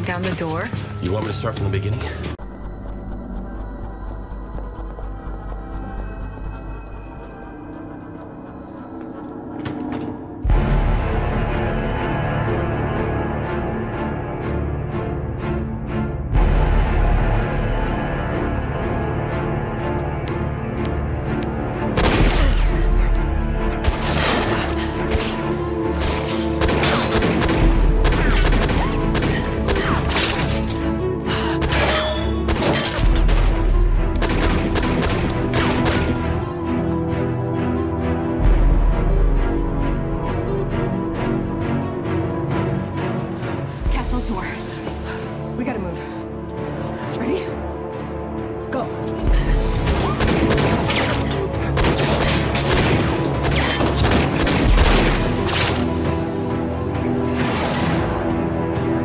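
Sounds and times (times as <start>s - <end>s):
tense dramatic music: 0.0s - 59.0s
gunfire: 26.0s - 30.6s, 31.6s - 36.3s, 49.8s - 55.9s.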